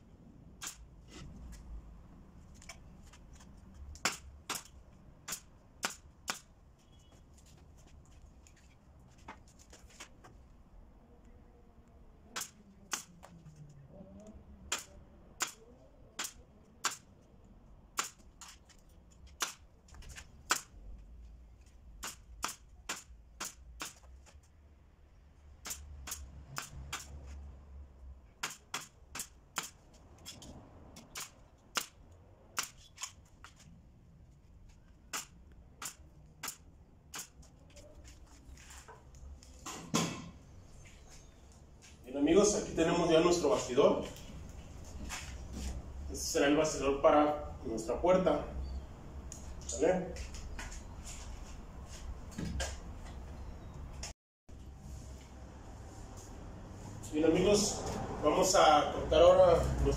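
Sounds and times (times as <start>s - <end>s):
nail gun firing: 28.4s - 29.8s.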